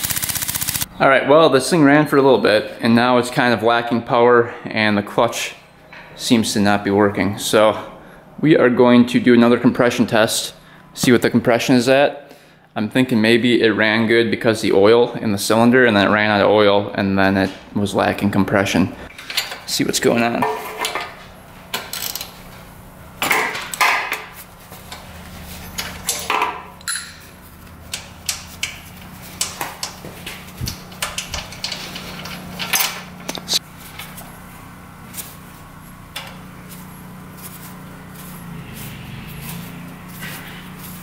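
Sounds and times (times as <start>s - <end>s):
steady low hum: 14.3s - 41.0s
metal tools clicking: 25.8s - 27.2s.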